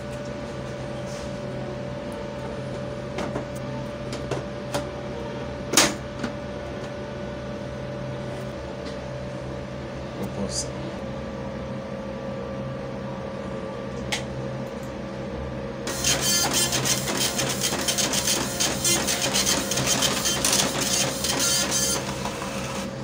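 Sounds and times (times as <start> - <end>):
dot-matrix printer printing: 15.9 - 23.0.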